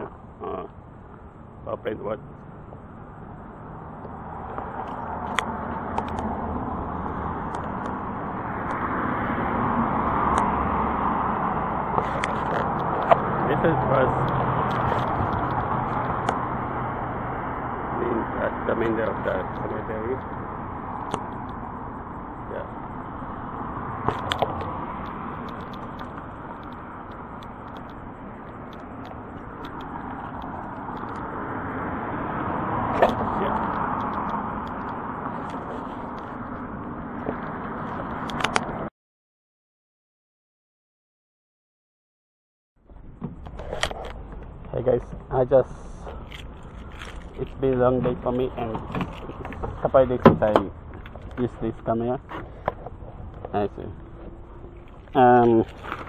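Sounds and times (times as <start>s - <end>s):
cars going by: 0.0s - 38.9s, 42.8s - 56.0s
road traffic noise: 0.0s - 38.9s, 42.8s - 56.0s
sharp clicks: 24.0s - 31.3s.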